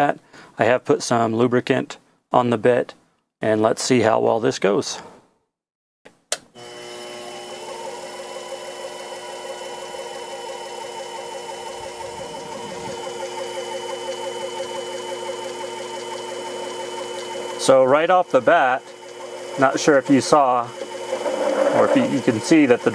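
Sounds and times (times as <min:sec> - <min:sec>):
lathe motor whining: 0:06.6 - 0:22.9.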